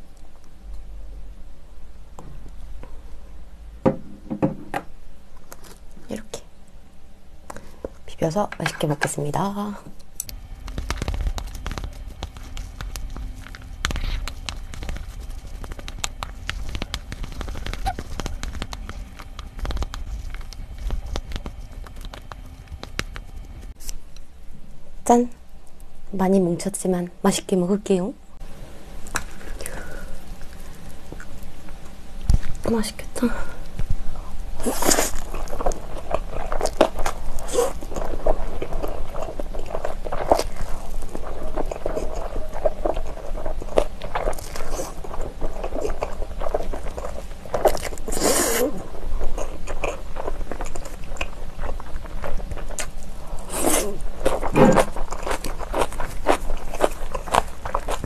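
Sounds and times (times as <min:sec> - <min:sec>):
wet chewing: 0:10.1 - 0:24.0, 0:33.6 - 0:58.0
chopsticks mixing sticky noodles: 0:10.3 - 0:23.9.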